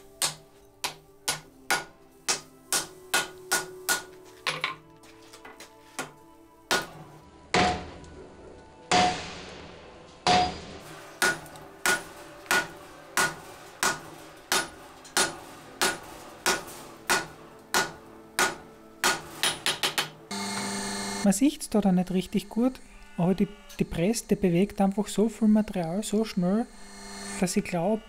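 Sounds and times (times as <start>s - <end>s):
hammer striking metal on anvil: 0.0s - 4.8s, 6.7s - 8.1s, 8.9s - 20.2s.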